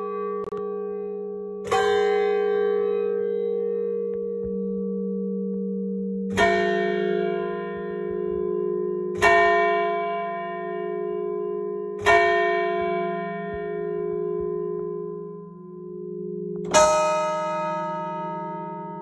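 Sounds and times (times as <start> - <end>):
large church bell tolling: 0.0 - 19.0.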